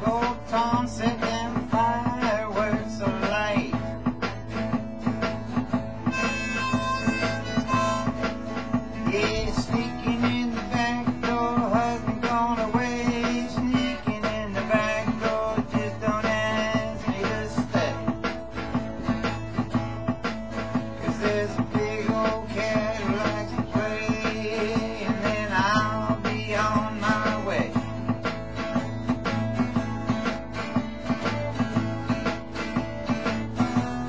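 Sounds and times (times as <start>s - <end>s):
programmed backing beat: 0.0s - 34.0s
strummed acoustic guitar: 0.0s - 34.0s
harmonica playing blues: 5.9s - 9.0s.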